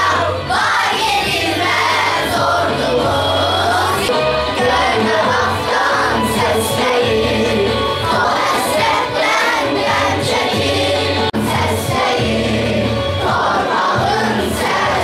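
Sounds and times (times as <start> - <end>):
backing track with low beat: 0.0 - 15.0
girls singing together: 0.0 - 15.0.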